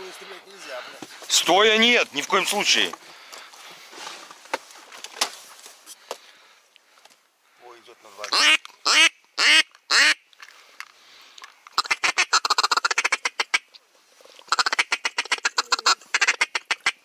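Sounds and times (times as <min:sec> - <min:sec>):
duck call clucking chatter: 0:08.3 - 0:10.2, 0:11.8 - 0:13.7, 0:14.5 - 0:17.0
duck call quacks: 0:08.3 - 0:10.2, 0:11.8 - 0:13.7, 0:14.5 - 0:17.0.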